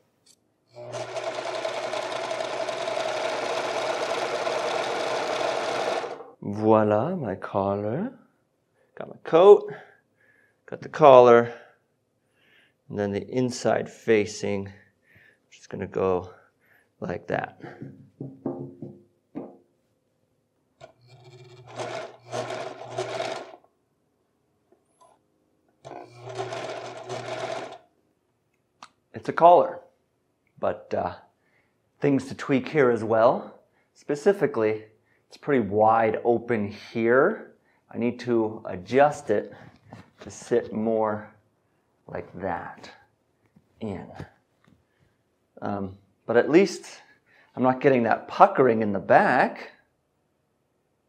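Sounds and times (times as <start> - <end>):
electric sewing machine stitching: 0.8 - 6.4, 20.8 - 23.6, 25.8 - 27.8.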